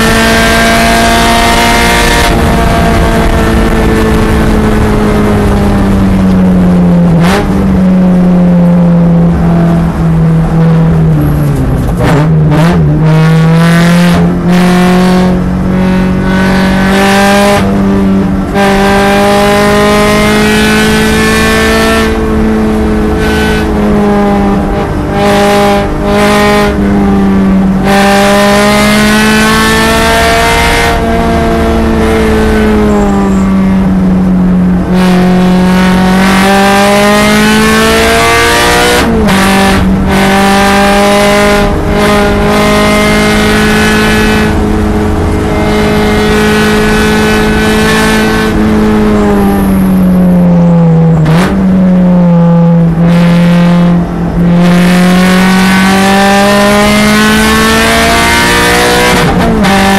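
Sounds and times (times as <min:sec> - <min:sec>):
car engine revving in cabin: 0:00.0 - 0:59.9.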